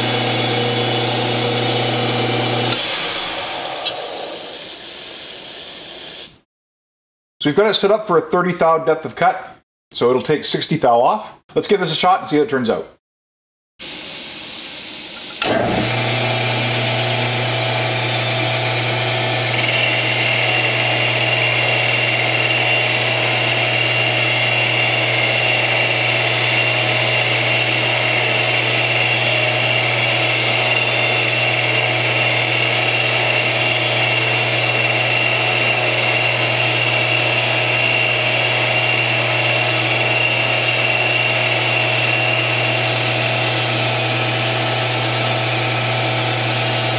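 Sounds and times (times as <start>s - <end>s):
lathe motor running: 0.0s - 4.7s, 15.4s - 46.9s
high whine of metal cutting: 0.0s - 4.9s, 15.4s - 46.9s
short hiss: 3.7s - 6.4s.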